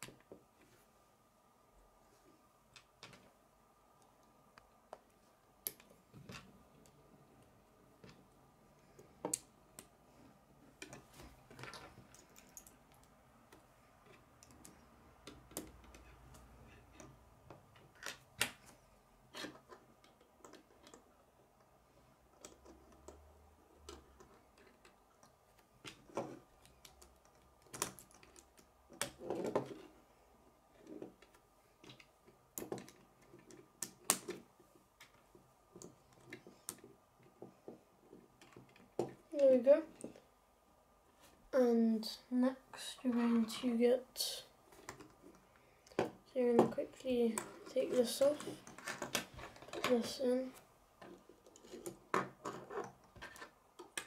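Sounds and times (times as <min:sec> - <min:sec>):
plastic pieces clicking together: 0:23.9 - 0:29.8.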